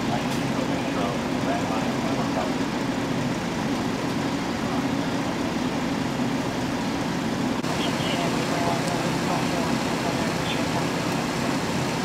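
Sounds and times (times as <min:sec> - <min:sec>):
engines idling: 0:00.0 - 0:12.0.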